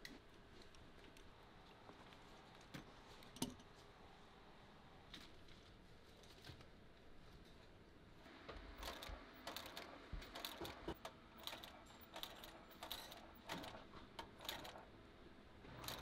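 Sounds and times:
sewing machine clacking: 8.8s - 14.8s, 15.8s - 16.0s.

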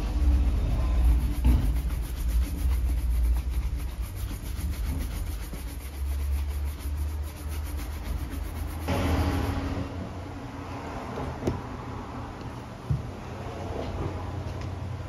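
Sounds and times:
low rumble: 0.0s - 5.2s
brush scrubbing leather: 0.0s - 8.9s.

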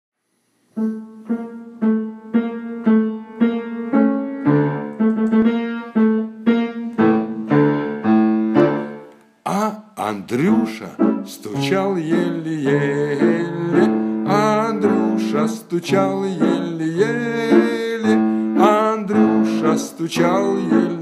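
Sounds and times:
piano bass notes: 0.8s - 9.1s, 10.1s - 21.0s
repeated piano note: 0.8s - 9.1s.

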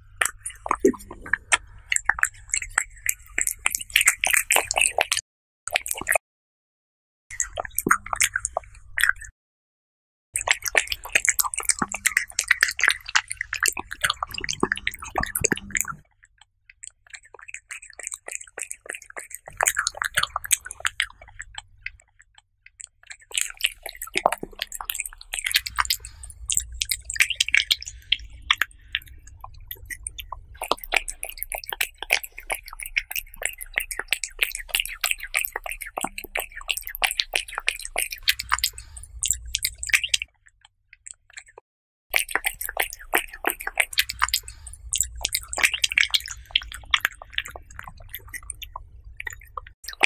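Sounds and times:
cat chewing and licking: 0.0s - 6.2s, 10.4s - 50.0s.

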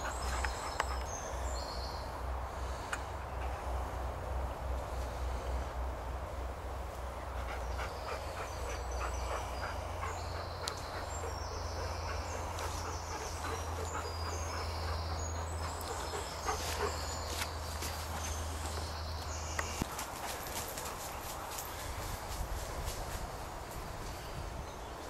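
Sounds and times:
small birds chirping: 0.0s - 3.9s, 6.8s - 25.0s
footsteps through undergrowth: 16.2s - 23.4s.

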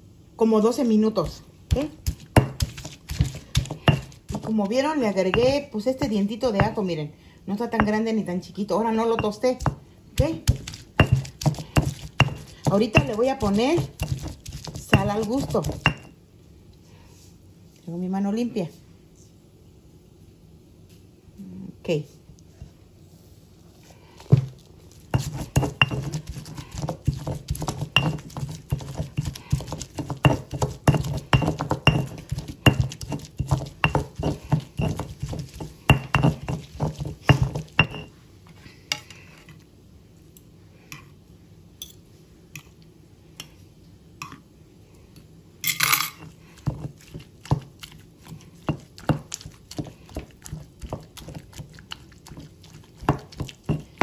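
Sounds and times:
stone pestle pounding and grinding: 1.2s - 6.8s, 7.8s - 8.0s, 9.0s - 16.1s, 24.2s - 38.1s, 46.2s - 54.0s.

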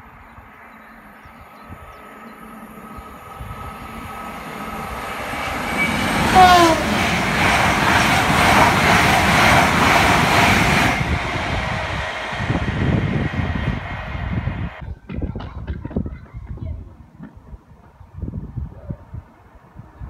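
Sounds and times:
passenger train passing: 0.0s - 14.8s.

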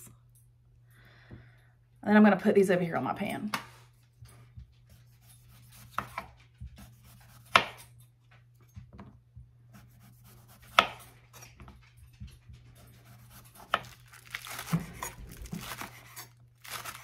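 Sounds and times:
knife slicing potato: 5.0s - 7.8s, 9.7s - 11.4s, 12.8s - 14.0s, 14.6s - 17.0s.

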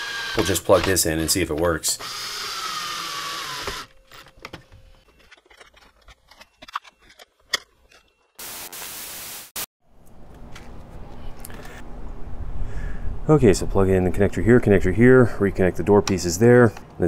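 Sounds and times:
cordless drill motor whine: 2.0s - 3.9s.

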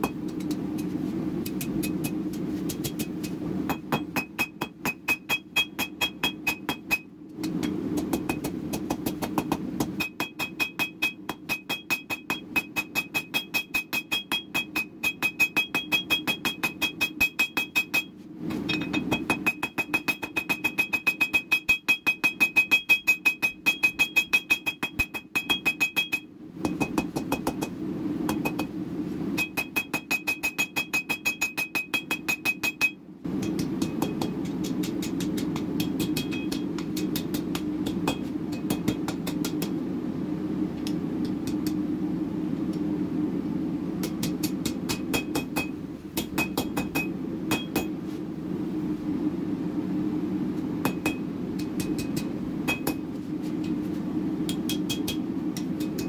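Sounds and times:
hammer striking steel on anvil: 0.0s - 18.1s, 18.7s - 28.7s, 29.4s - 39.8s, 44.0s - 48.0s, 50.8s - 53.1s, 54.5s - 56.0s
low steady hum: 0.0s - 56.0s.

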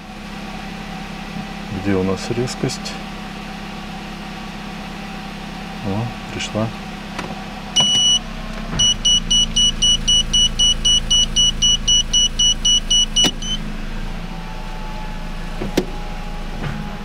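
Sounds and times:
car engine idling: 0.0s - 17.0s
reverse warning beeper: 7.8s - 13.6s.

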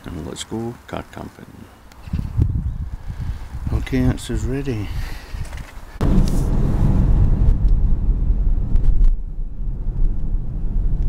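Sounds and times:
car engine and tyre rumble: 5.8s - 11.0s.

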